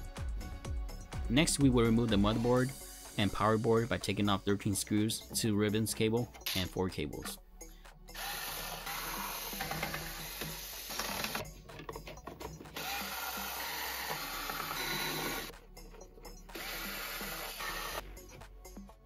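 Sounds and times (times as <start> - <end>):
cordless screwdriver running: 8.2 - 11.5, 12.7 - 15.5, 16.5 - 18.0.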